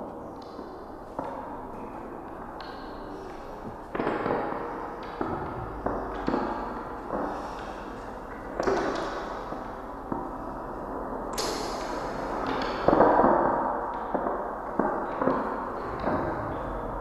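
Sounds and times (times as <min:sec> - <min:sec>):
percussive hits with ringing tail: 0:03.6 - 0:10.7.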